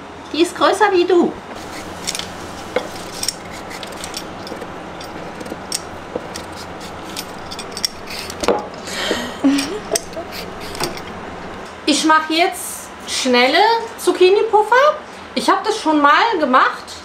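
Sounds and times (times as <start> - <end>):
peeler scraping vegetables: 1.4 - 11.6.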